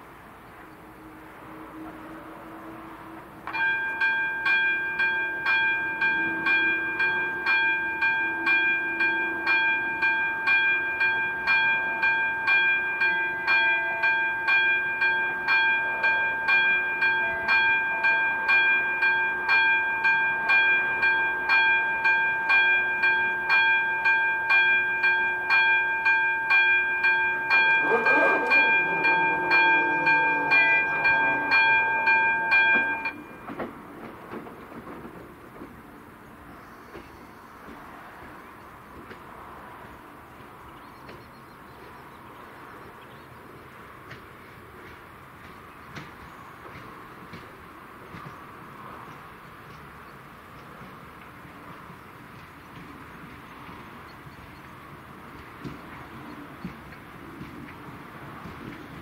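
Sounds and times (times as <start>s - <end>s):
electronic warning bell ringing: 3.6s - 33.5s.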